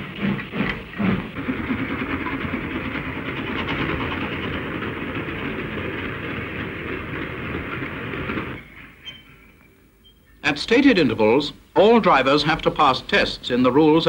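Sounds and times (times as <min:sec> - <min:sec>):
train wheels running on rails: 0:00.0 - 0:09.8.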